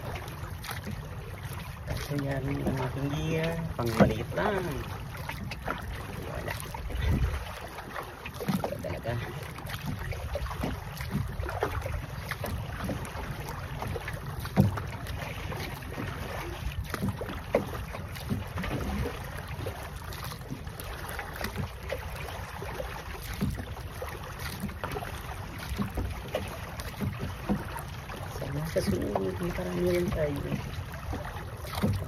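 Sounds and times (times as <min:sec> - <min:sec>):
paddle splashing through water: 0:00.0 - 0:32.0
wind rumble on microphone: 0:05.4 - 0:07.6.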